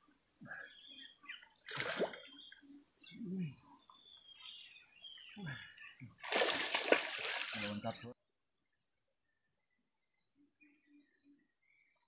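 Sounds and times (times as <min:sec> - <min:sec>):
insects droning: 0:00.0 - 0:12.0
bait splashing into river: 0:01.6 - 0:02.4, 0:06.1 - 0:08.0.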